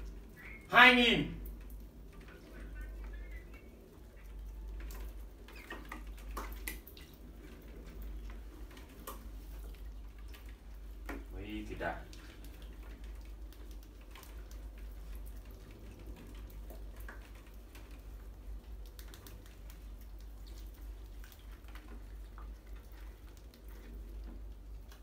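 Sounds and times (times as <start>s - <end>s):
mice nibbling grain: 0.0s - 0.7s, 1.4s - 25.0s
low steady hum: 0.0s - 25.0s
mice scrabbling on tiles and glass: 1.6s - 11.3s.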